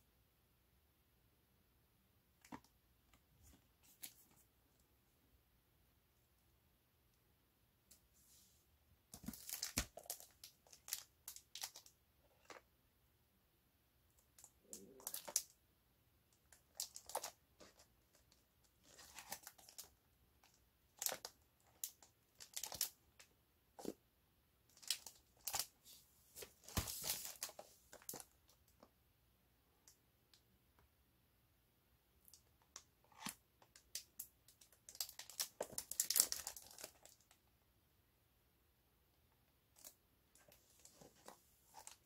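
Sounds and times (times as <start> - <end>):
plastic shrink wrap crinkling: 9.2 - 12.6, 14.8 - 15.5, 16.7 - 17.8, 21.0 - 23.0, 24.7 - 25.7, 26.4 - 28.3, 34.6 - 37.4.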